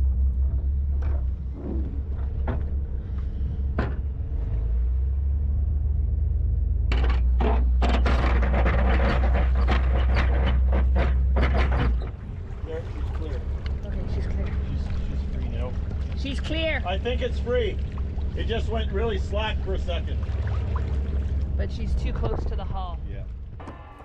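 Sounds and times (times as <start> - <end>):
boat engines droning: 0.0 - 24.0
dense crackling rush: 7.9 - 24.0.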